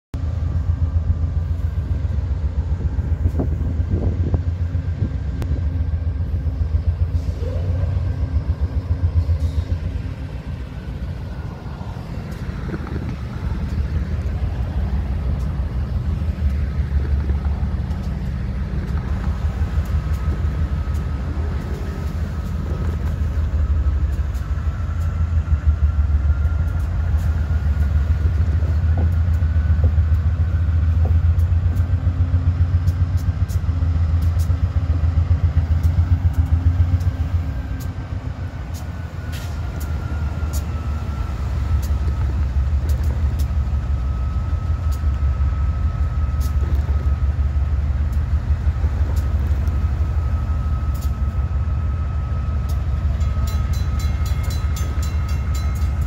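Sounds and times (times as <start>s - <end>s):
diesel locomotive engine rumble: 0.1s - 56.0s
thin steady whine: 0.6s - 56.0s.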